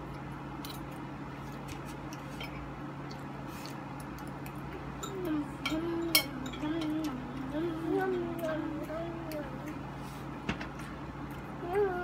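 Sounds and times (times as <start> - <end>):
chewing: 0.0 - 5.4
steady low hum: 0.0 - 12.0.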